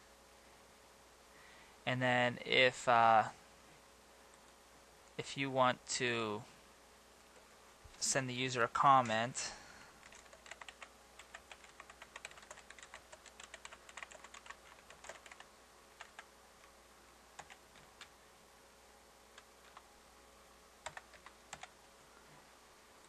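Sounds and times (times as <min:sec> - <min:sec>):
computer keyboard typing: 0:10.0 - 0:16.3, 0:17.4 - 0:18.1, 0:19.4 - 0:19.9, 0:20.8 - 0:21.8.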